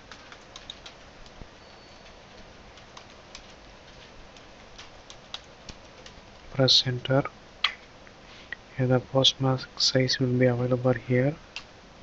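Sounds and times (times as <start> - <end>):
keyboard keystrokes: 0.0 - 1.4, 2.0 - 6.2
low steady hiss: 0.0 - 12.0.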